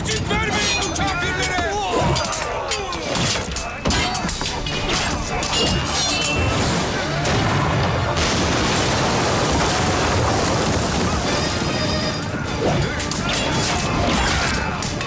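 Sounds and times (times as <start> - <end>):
film score music: 0.0 - 15.0
debris crashing on wooden deck: 7.2 - 12.3.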